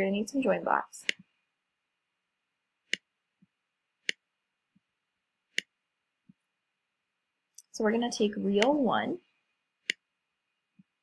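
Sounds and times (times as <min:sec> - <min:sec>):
computer mouse clicks: 0:01.0 - 0:01.3, 0:02.9 - 0:03.1, 0:09.8 - 0:10.1.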